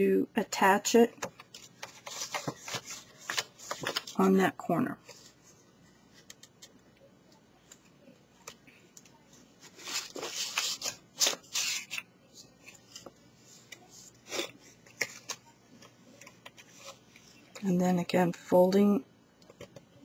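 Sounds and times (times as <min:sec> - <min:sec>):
paper rustling and crinkling: 0:01.2 - 0:04.2, 0:09.6 - 0:17.5.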